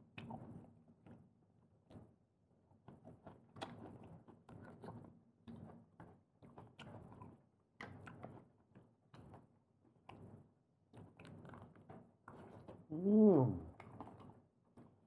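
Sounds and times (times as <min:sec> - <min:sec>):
chewing and eating: 0:02.9 - 0:14.9.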